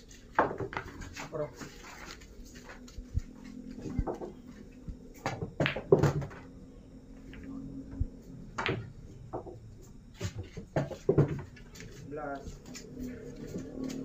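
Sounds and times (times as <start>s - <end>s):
pool balls clacking: 0.1s - 1.8s, 3.7s - 6.6s, 7.2s - 12.8s.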